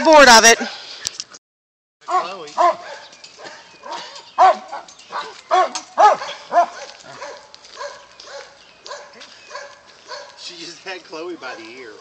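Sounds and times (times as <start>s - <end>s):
dogs barking in high yips: 2.1s - 10.4s.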